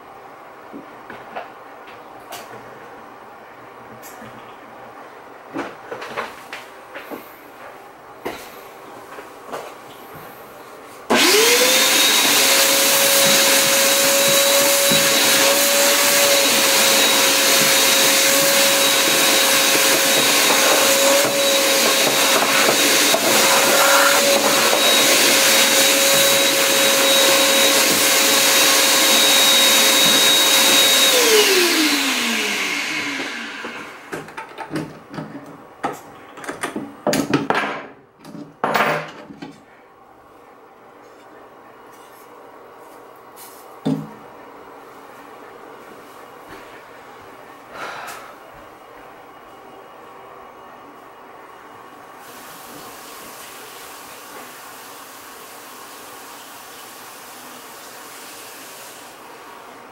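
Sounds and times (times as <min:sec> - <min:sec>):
shop vacuum whining: 0:06.9 - 0:36.8
vacuum spinning down: 0:11.1 - 0:34.2.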